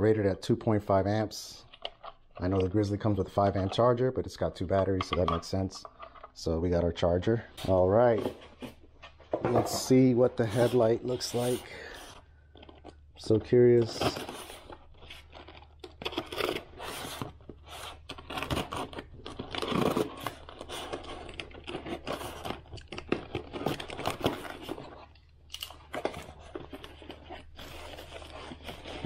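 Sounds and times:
tape ripping off cardboard: 13.9 - 26.4.

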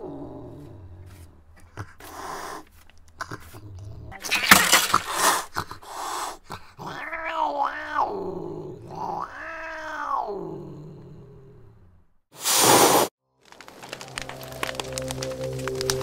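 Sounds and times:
cat hissing: 0.0 - 11.0, 12.4 - 13.1
cat yowling: 6.8 - 10.6.

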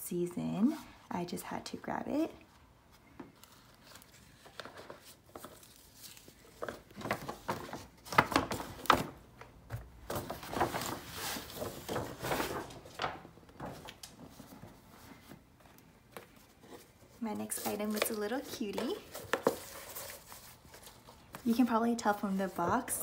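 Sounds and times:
paper bag and boxes rustling: 3.3 - 23.0.

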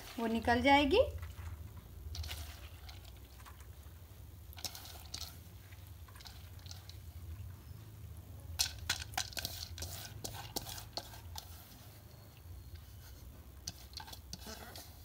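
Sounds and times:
wet squishing and pattering: 0.0 - 7.6.

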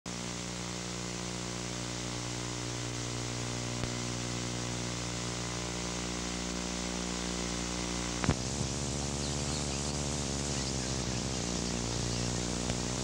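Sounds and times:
electrical mains hum: 0.1 - 13.0
videotape hiss: 0.1 - 13.0
faint click: 8.2 - 8.4.

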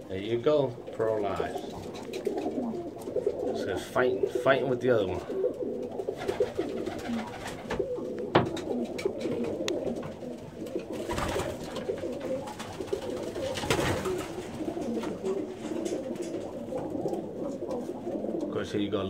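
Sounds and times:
pigeons cooing: 0.0 - 19.0
sharp knocks: 7.8 - 8.7.

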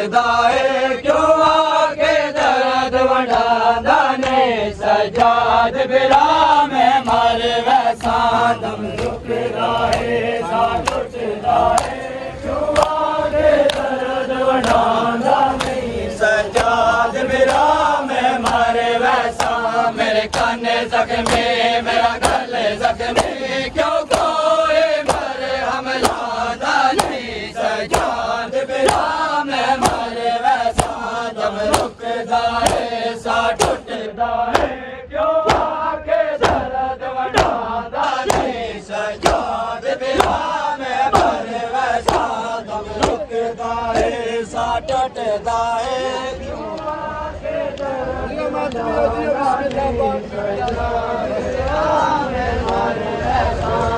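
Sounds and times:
crowd chanting in unison: 0.0 - 53.9
hands slapping chests: 7.9 - 8.3, 9.9 - 10.2, 10.8 - 11.1, 11.7 - 12.1, 12.7 - 13.0, 13.6 - 13.9, 14.6 - 14.9, 15.5 - 15.8, 16.5 - 16.8, 17.4 - 17.8, 18.4 - 19.7, 20.3 - 20.6, 21.2 - 21.5, 22.2 - 23.4, 24.1 - 24.4, 25.0 - 25.4, 26.0 - 29.2, 29.8 - 30.1, 30.7 - 32.0, 32.6 - 32.9, 33.6 - 34.8, 35.4 - 35.8, 36.4 - 36.7, 37.3 - 37.6, 38.2 - 38.6, 39.2 - 40.5, 41.1 - 41.4, 42.0 - 43.3.

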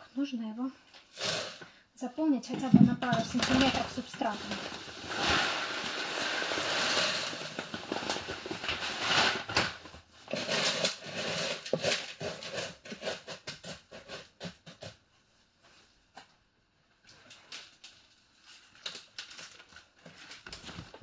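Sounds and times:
grains rattling and scraping: 2.6 - 9.6, 10.2 - 13.2
plastic bag crinkling: 3.2 - 12.7, 17.4 - 21.0
hiss of falling grains: 4.5 - 8.1.

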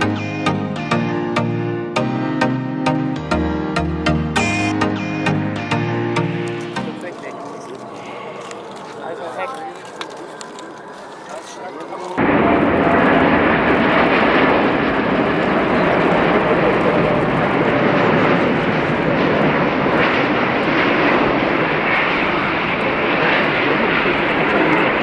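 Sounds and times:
jet airliner engines: 5.6 - 25.0.

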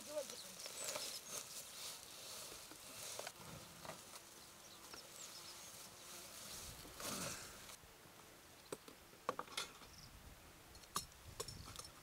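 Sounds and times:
flying insect buzzing: 0.4 - 7.8.

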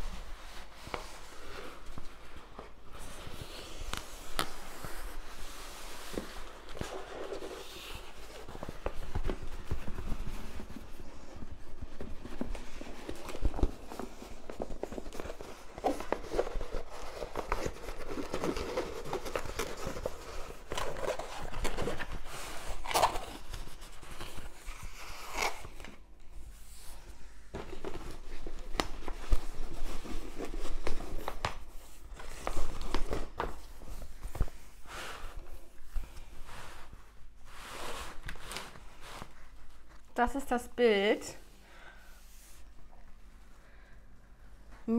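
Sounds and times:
plastic film rustling and crackling: 0.0 - 26.2.

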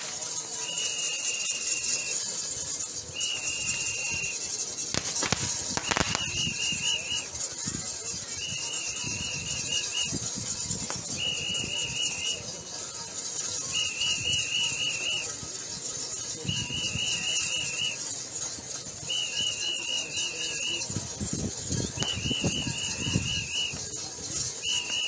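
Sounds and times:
crowd hubbub: 0.0 - 25.0
whistle blasts: 0.0 - 25.0.

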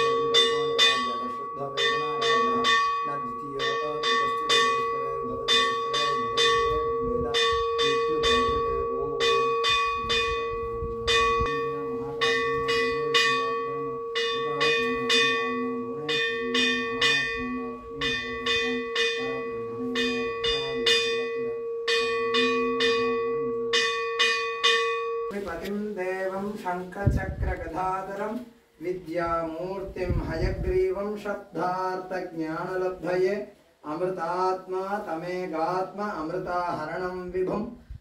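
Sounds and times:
brass hand bell ringing: 0.0 - 25.4.

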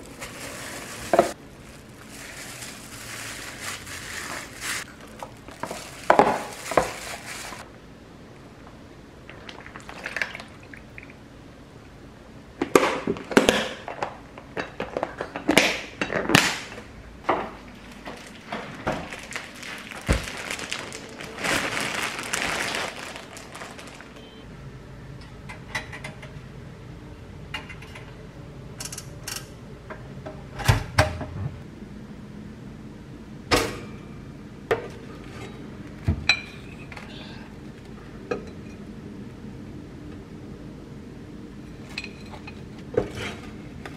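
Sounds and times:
plastic containers clattering: 0.0 - 7.6, 17.3 - 24.3
plastic bag rustling: 0.0 - 7.7, 17.6 - 24.4.

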